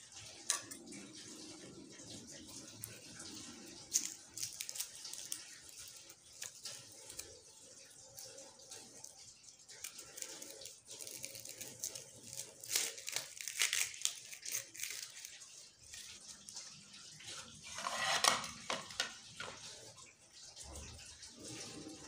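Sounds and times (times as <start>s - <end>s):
onion skin crackling: 3.6s - 9.2s, 9.8s - 16.5s
knife blade scraping: 17.7s - 19.5s.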